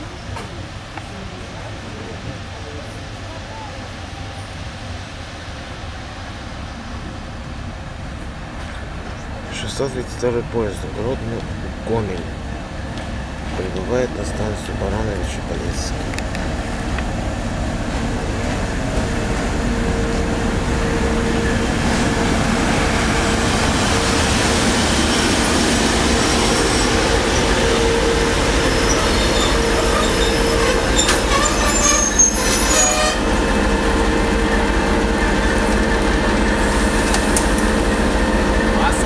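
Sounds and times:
diesel locomotive engine running: 0:00.0 - 0:39.0
brake squeals: 0:26.2 - 0:33.2.

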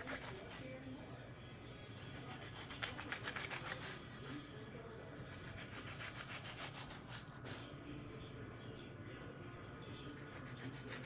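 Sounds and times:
knife sawing through tomato: 0:00.0 - 0:00.7, 0:02.0 - 0:04.1, 0:05.3 - 0:07.7, 0:10.0 - 0:11.0.

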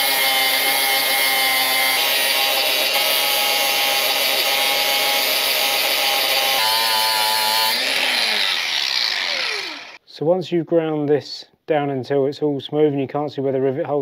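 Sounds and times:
angle grinder grinding metal: 0:00.0 - 0:10.0.

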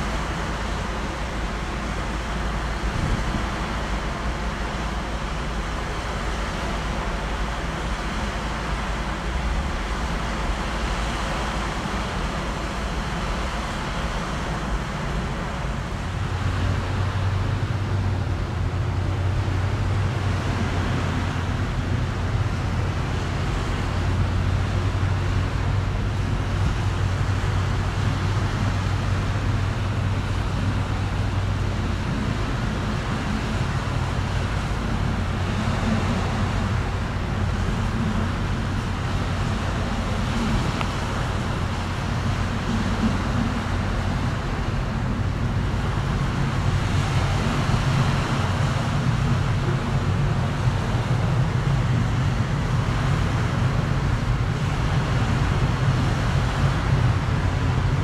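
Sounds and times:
distant engines and traffic rumble: 0:00.0 - 0:58.0
low hum: 0:00.0 - 0:58.0
higher hum: 0:09.2 - 0:58.0.

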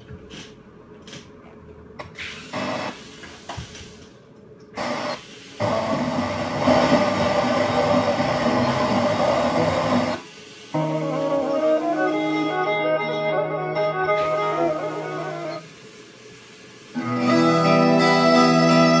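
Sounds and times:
radio tuning bursts: 0:04.8 - 0:10.2
radio reception hiss: 0:14.2 - 0:17.0.

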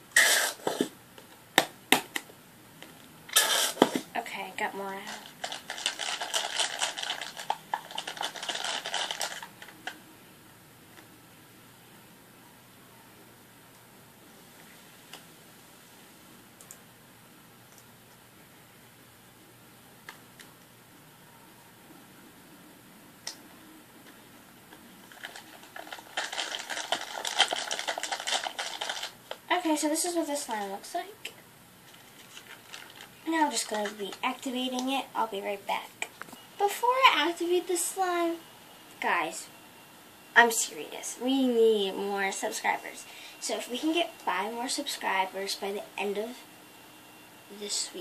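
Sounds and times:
crunchy slime crackling: 0:04.9 - 0:09.9, 0:25.0 - 0:29.4.

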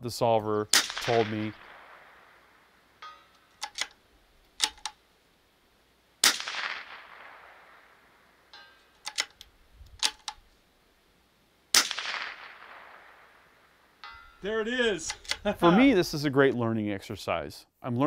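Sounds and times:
rifle shot with echo: 0:00.7 - 0:03.5, 0:06.2 - 0:08.8, 0:11.7 - 0:14.0
rifle bolt rattling and clicking: 0:03.2 - 0:05.0, 0:08.6 - 0:10.5, 0:15.0 - 0:15.5.

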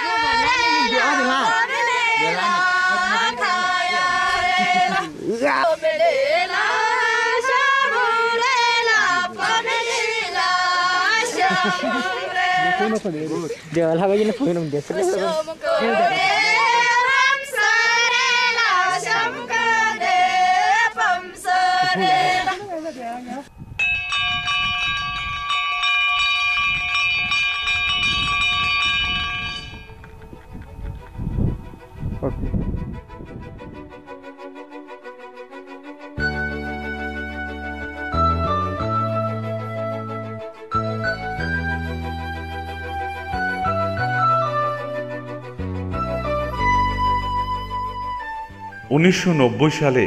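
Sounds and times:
girls singing together: 0:00.0 - 0:13.1, 0:15.2 - 0:22.7
metal bells ringing: 0:23.6 - 0:30.0.

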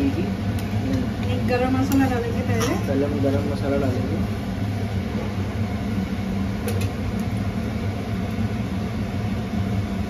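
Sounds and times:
low mechanical hum: 0:00.0 - 0:10.0.

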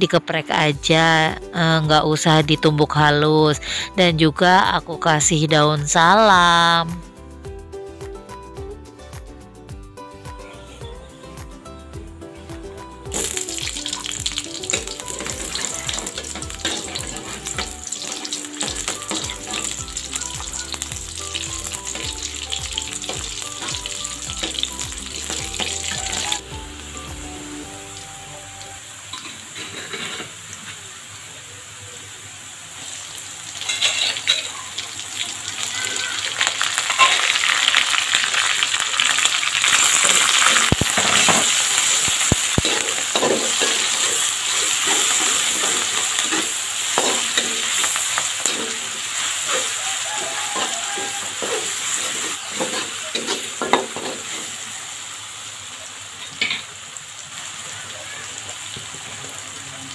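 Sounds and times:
metal spatula scraping wok: 0:13.1 - 0:26.5, 0:29.1 - 0:30.4, 0:33.6 - 0:34.5, 0:39.6 - 0:54.5
paste sizzling in hot oil: 0:13.1 - 0:59.9.

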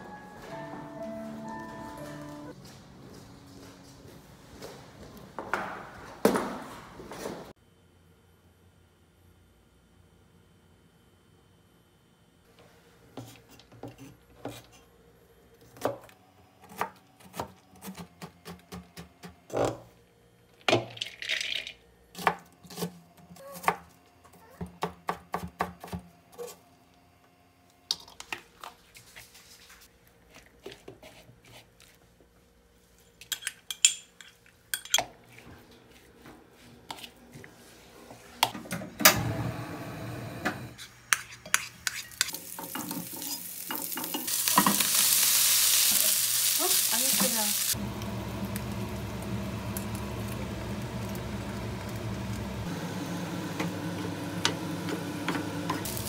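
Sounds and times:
eggs frying: 0:40.8 - 0:56.0
rice sizzling in frying pan: 0:41.8 - 0:56.0.

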